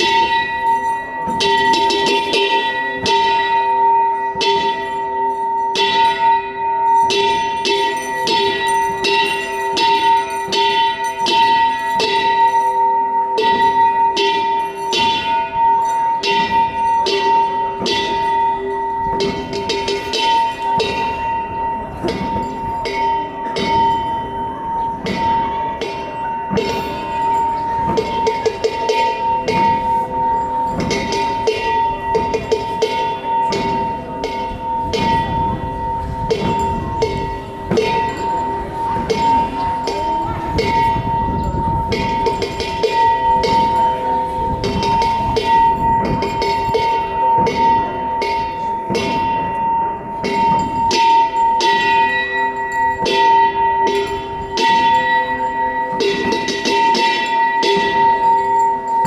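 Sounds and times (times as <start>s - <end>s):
cymbals clashing: 0.0s - 59.0s
metallic ringing tones: 0.0s - 59.0s
large drum beaten: 13.4s - 52.2s.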